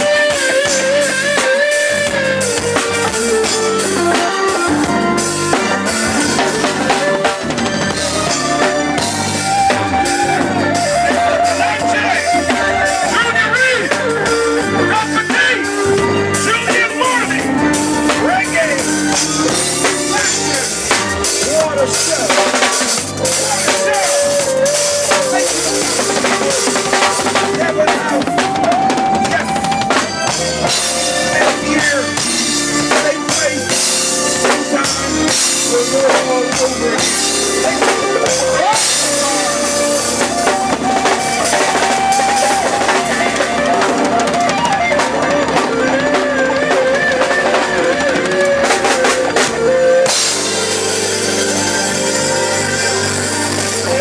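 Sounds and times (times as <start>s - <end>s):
reggae band playing: 0.0s - 54.0s
drum kit hits: 15.4s - 54.0s.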